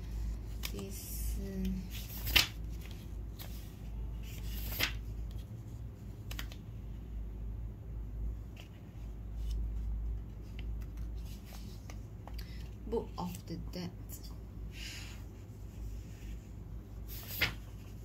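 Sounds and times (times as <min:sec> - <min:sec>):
paper pages rustling: 0:00.0 - 0:01.0, 0:01.7 - 0:06.6, 0:08.5 - 0:13.4, 0:15.4 - 0:18.0
steady low hum: 0:00.0 - 0:18.0.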